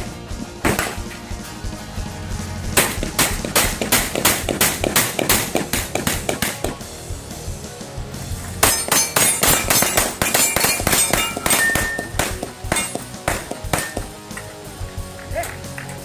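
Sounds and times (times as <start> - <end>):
rapid pistol fire: 2.8 - 6.9, 8.6 - 14.1
steel plates ringing: 8.6 - 14.2.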